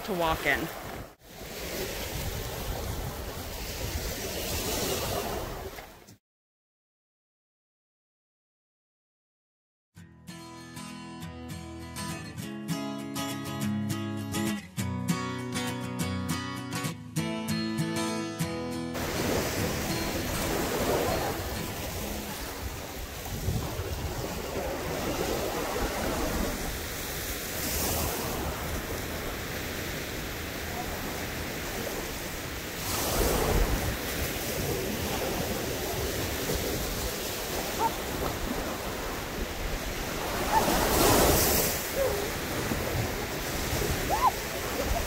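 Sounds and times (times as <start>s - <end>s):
surf breaking on beach: 0.0s - 5.9s, 19.0s - 45.0s
wind on microphone: 0.8s - 5.8s, 19.0s - 30.1s, 30.7s - 45.0s.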